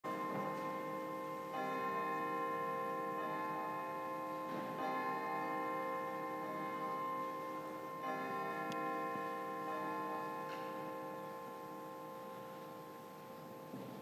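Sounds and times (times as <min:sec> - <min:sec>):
church organ playing chords: 0:00.0 - 0:14.0.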